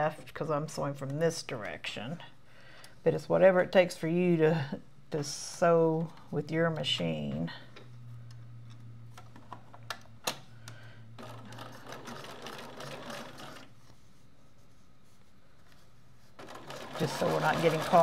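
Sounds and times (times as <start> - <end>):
sewing machine stitching: 11.2 - 13.7, 16.4 - 18.0.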